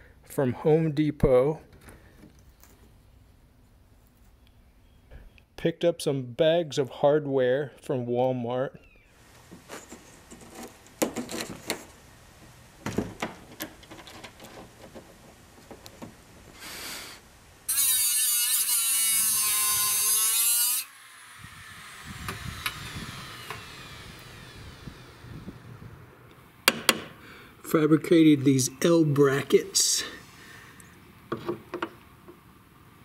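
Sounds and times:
small clicks and knocks: 0:12.8 - 0:16.2
electric rotary tool whining: 0:17.7 - 0:26.6.

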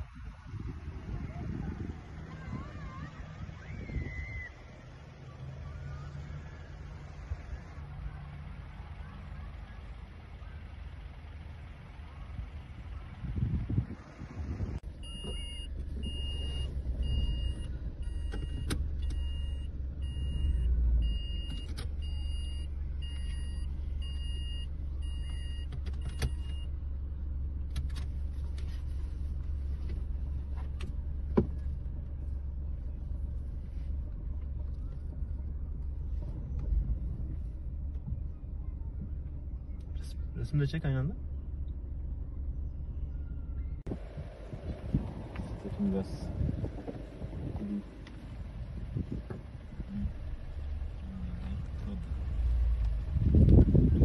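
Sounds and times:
car engine and road rumble: 0:00.0 - 0:54.0
electronic warning beep: 0:15.0 - 0:26.7.

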